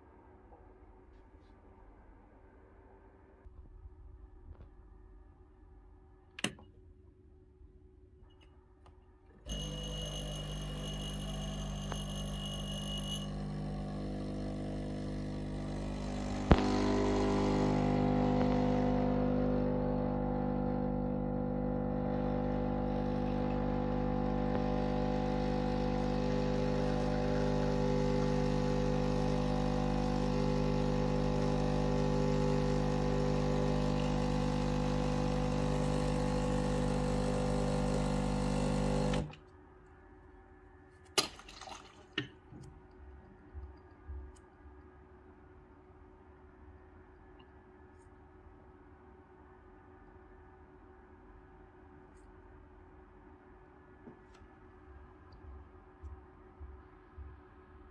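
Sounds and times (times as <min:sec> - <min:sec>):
espresso machine pump humming: 0:09.5 - 0:39.4
espresso machine click: 0:13.3 - 0:19.0.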